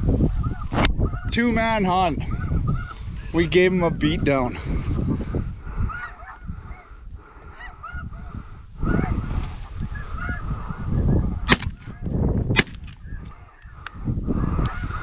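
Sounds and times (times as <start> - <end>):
geese honking: 2.3 - 3.0, 5.7 - 9.4, 10.0 - 10.9, 13.4 - 15.0.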